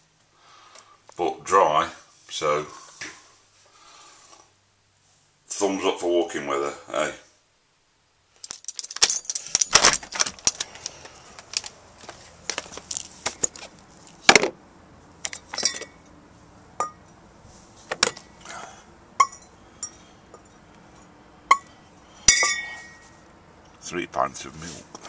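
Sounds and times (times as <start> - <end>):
glass bottles rattling: 8.4 - 11.6, 15.3 - 16.0
glass clinks ringing: 15.5 - 16.0, 16.8 - 17.0, 19.2 - 20.6, 21.5 - 21.7, 22.3 - 23.1.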